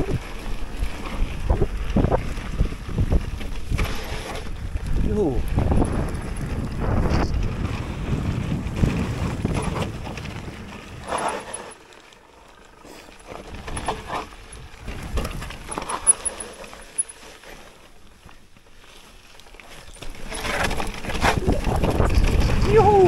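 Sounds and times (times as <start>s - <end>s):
wind buffeting microphone: 0.0s - 11.1s, 21.1s - 23.0s
bike rattling: 0.0s - 23.0s
bike clicks and knocks: 8.8s - 18.7s, 19.4s - 22.8s.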